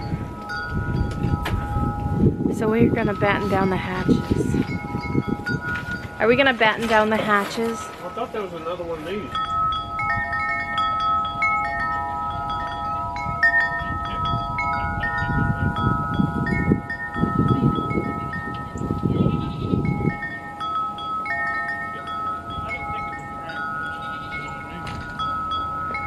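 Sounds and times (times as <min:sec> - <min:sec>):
wind rumble on microphone: 0:00.0 - 0:21.0
wind chimes ringing: 0:00.0 - 0:26.0.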